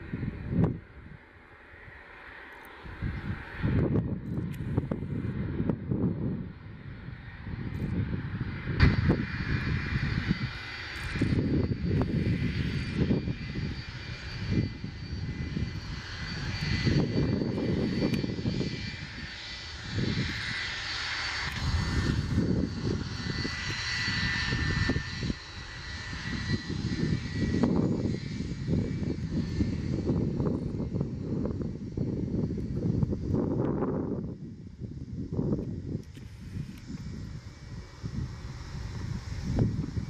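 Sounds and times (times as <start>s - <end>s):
jet engines whining and rumbling: 0.0s - 40.0s.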